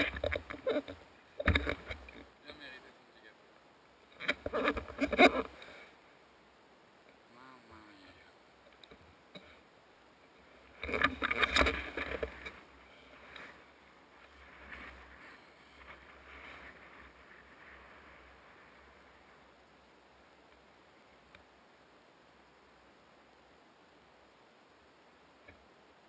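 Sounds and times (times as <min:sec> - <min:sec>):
camera handling rustling and knocking: 0:00.0 - 0:02.2, 0:10.8 - 0:12.6.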